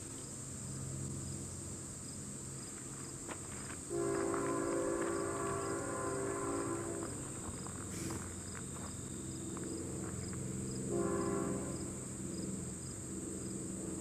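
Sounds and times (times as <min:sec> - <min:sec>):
insects trilling: 0:00.0 - 0:14.0
train rumbling: 0:01.0 - 0:14.0
locomotive air horn: 0:03.9 - 0:08.2, 0:10.9 - 0:12.1.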